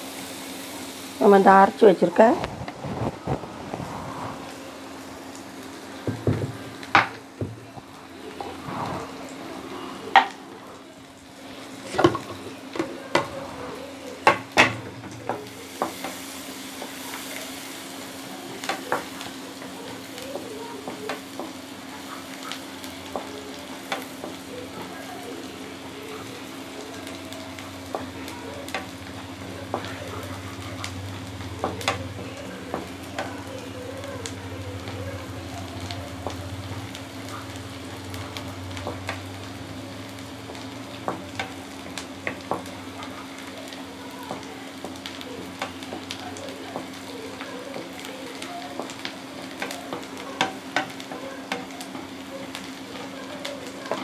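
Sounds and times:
onions sizzling in oil: 0.0s - 54.0s
steady low hum: 0.9s - 15.7s.

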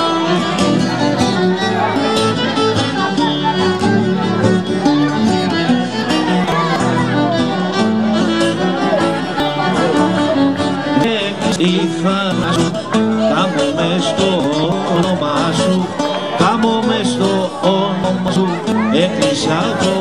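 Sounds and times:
crowd voices: 0.0s - 20.0s
lute accompaniment: 0.0s - 20.0s
violin melody: 0.0s - 20.0s.

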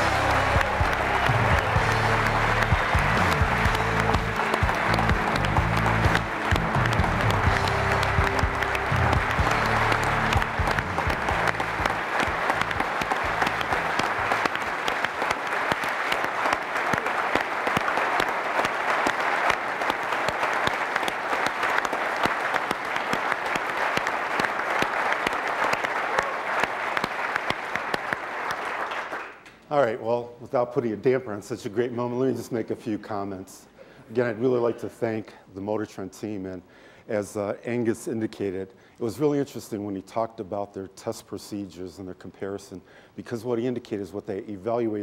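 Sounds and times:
music: 0.0s - 14.6s
audience applause: 0.0s - 29.5s.

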